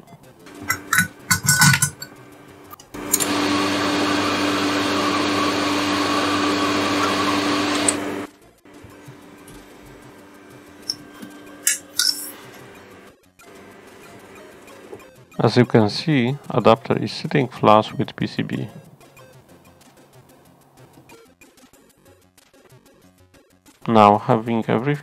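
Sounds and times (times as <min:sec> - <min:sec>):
desoldering pump humming and hissing: 0:00.4 - 0:15.0.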